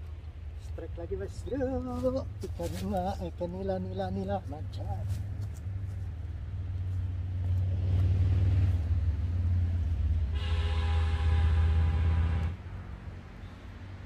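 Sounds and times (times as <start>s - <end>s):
passing vehicle rumble: 0.0s - 14.0s
horn-like tone: 10.3s - 12.6s.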